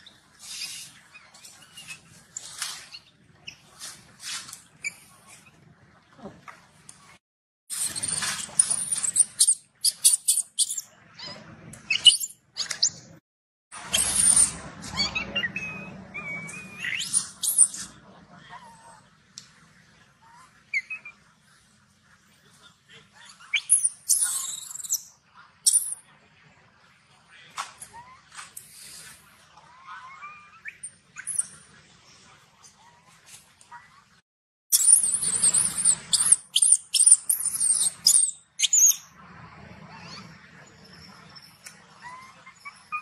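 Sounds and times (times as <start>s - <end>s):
monkey squeaks: 0.5s - 3.6s, 7.7s - 13.1s, 13.8s - 17.9s, 23.5s - 25.1s, 25.7s - 26.0s, 30.1s - 31.6s, 34.7s - 39.1s
monkey shrill screech: 7.7s - 12.3s, 13.8s - 17.9s, 23.6s - 25.0s, 34.8s - 39.0s.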